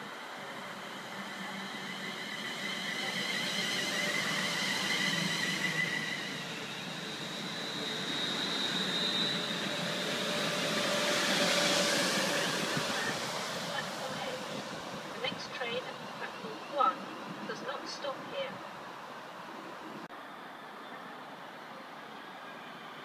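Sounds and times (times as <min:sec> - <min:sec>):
high-pitched whines: 0:00.0 - 0:18.4
train wheels rumbling: 0:00.0 - 0:18.9.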